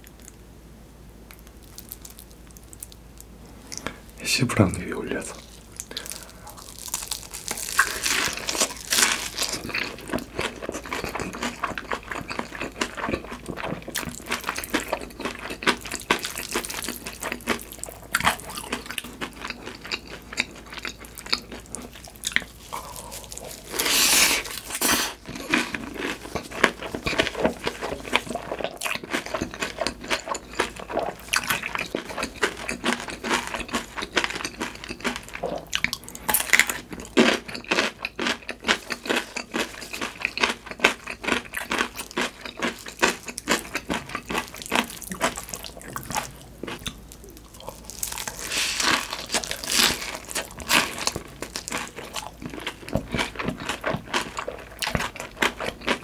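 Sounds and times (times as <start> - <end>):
biting and chewing crispy food: 1.3 - 56.0
wet mouth clicks and crunches: 5.7 - 14.6.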